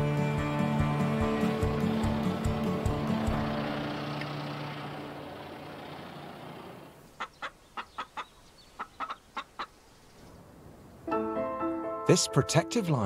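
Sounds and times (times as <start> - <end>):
hen clucking: 7.1 - 9.8.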